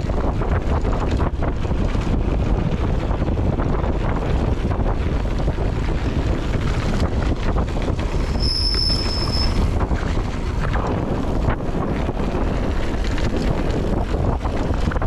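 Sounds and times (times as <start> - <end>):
bike rattling over rough trail: 0.0 - 15.0
wind buffeting microphone: 0.0 - 15.0
high-pitched squeal: 8.2 - 9.7.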